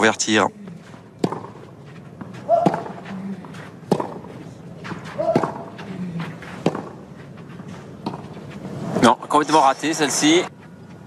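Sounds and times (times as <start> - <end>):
racket striking tennis ball: 1.2 - 3.1, 3.8 - 5.9, 6.5 - 7.0, 8.0 - 8.4.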